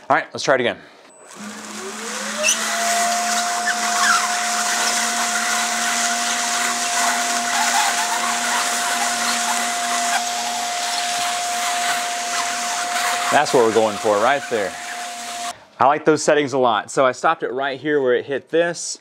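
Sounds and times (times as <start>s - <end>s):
air cushion machine whine: 1.1s - 15.6s.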